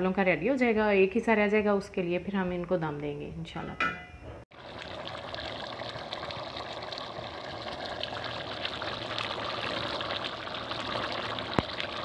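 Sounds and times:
rice boiling with bubbling: 0:04.5 - 0:12.0.

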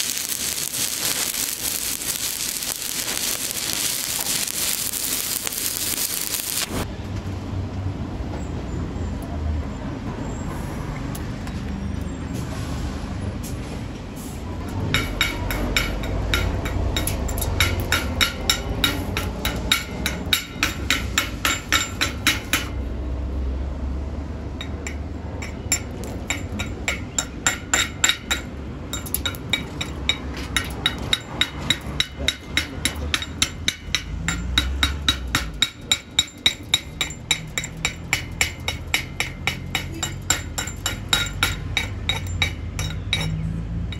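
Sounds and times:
hammer tapping on steel: 0:14.9 - 0:22.8, 0:24.6 - 0:43.4.

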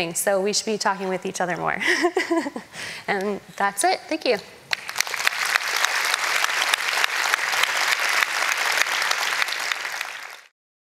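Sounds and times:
audience applauding: 0:04.7 - 0:10.5.

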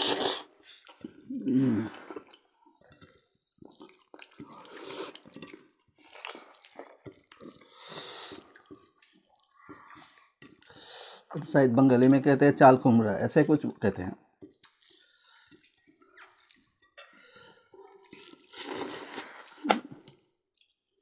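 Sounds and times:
wet chewing and lip-smacking: 0:01.9 - 0:11.4, 0:14.4 - 0:17.0, 0:17.7 - 0:19.7, 0:20.5 - 0:21.0.

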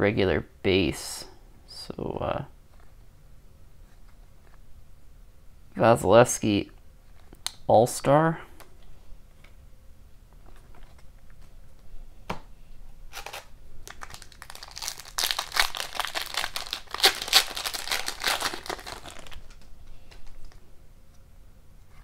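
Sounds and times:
foil wrapper tearing and crinkling: 0:13.1 - 0:20.6.

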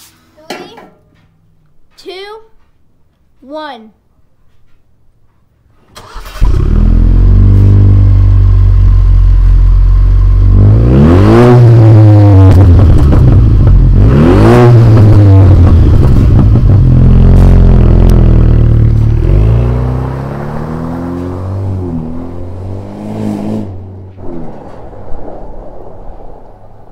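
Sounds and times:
car engine starting and idling: 0:05.9 - 0:25.0
engine revving: 0:06.0 - 0:26.6.

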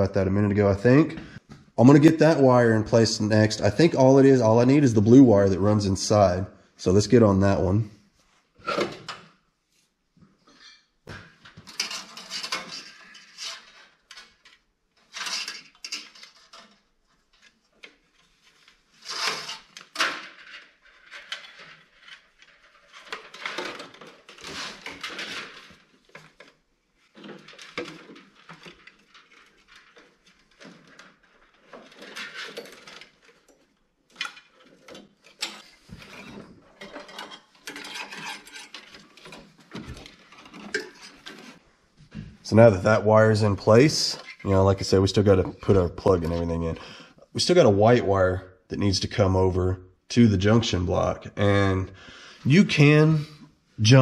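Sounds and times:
wire rustling and scraping: 0:08.2 - 0:46.8.

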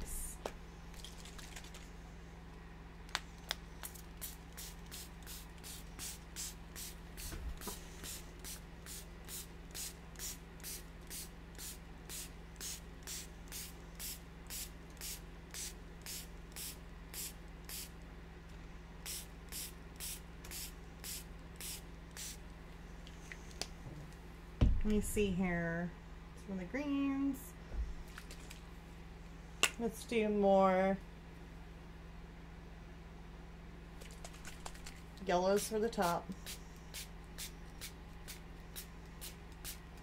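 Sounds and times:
spray bottle hissing mist: 0:03.8 - 0:17.9, 0:19.1 - 0:22.4.

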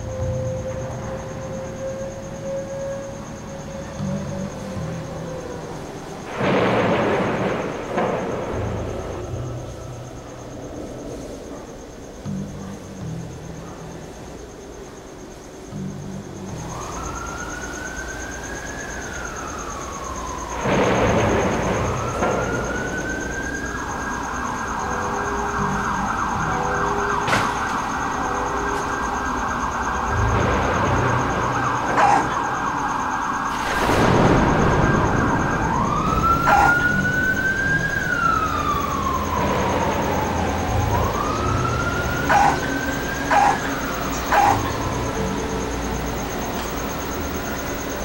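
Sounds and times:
emergency siren wailing: 0:00.0 - 0:12.3, 0:15.7 - 0:48.0
rushing noise bursts: 0:29.1 - 0:48.0.

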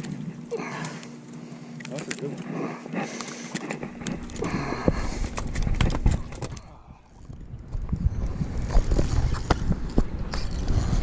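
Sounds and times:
clicks and knocks on boat: 0:03.0 - 0:06.8
wind rumble on microphone: 0:03.9 - 0:11.0.

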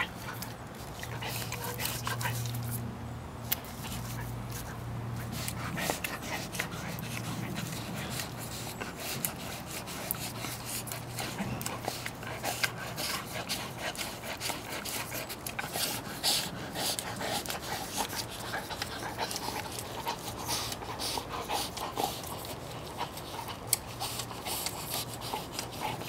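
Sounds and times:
dog licking brush: 0:00.0 - 0:26.0.

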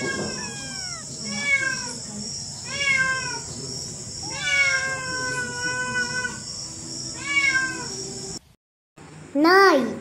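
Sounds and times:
kitten meowing: 0:00.0 - 0:02.0, 0:02.6 - 0:03.4, 0:04.2 - 0:06.4, 0:07.2 - 0:08.0.

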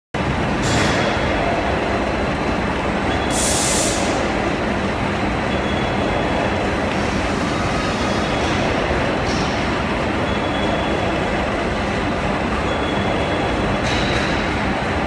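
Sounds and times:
loud industrial rumble: 0:00.2 - 0:15.0
hiss: 0:03.3 - 0:04.2.

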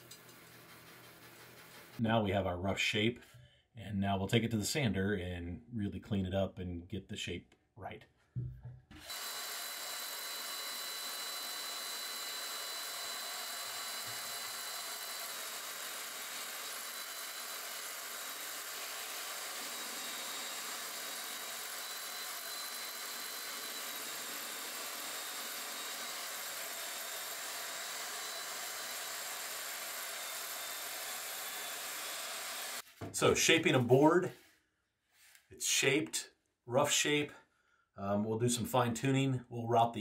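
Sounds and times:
belt sander whirring: 0:08.9 - 0:32.8.

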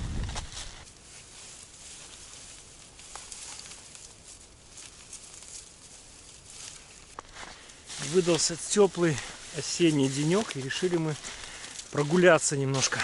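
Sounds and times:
footsteps through dry grass: 0:00.0 - 0:13.0
leaves crunching: 0:00.0 - 0:13.0.

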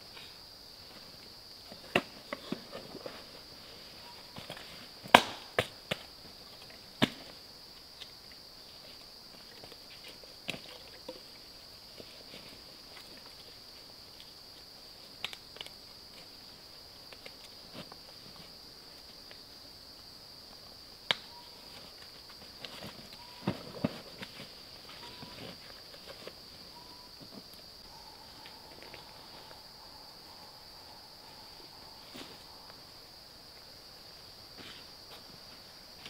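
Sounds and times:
insects droning: 0:00.0 - 0:36.0.

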